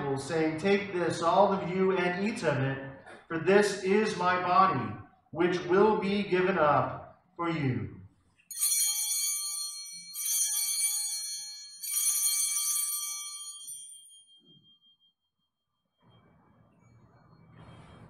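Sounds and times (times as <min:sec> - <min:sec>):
altar bells ringing: 0:08.5 - 0:15.0.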